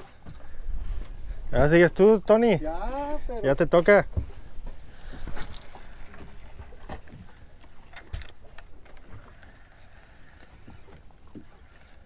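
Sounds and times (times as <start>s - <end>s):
water noise: 0.0s - 12.0s.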